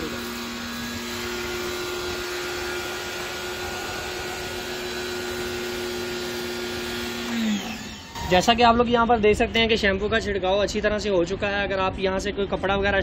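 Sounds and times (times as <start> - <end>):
pressure washer motor humming: 0.0 - 8.6.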